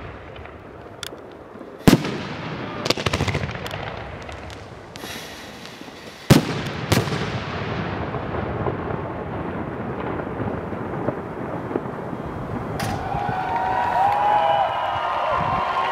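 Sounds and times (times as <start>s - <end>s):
fireworks bangs: 0.0s - 15.8s
rumble of fireworks bursts: 0.0s - 15.8s.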